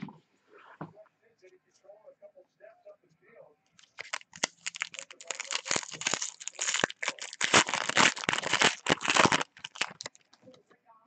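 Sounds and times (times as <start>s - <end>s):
foil wrapper tearing and crinkling: 3.8s - 10.3s.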